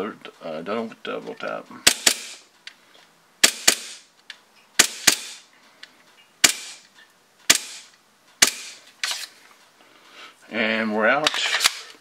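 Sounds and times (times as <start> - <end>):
airsoft pistol shots: 1.9 - 2.4, 3.4 - 4.1, 4.8 - 5.5, 6.4 - 6.8, 7.5 - 8.8.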